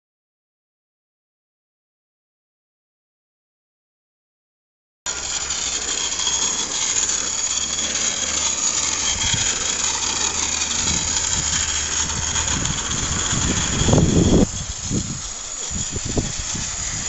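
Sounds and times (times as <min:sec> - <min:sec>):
model steam locomotive running: 0:05.1 - 0:17.0.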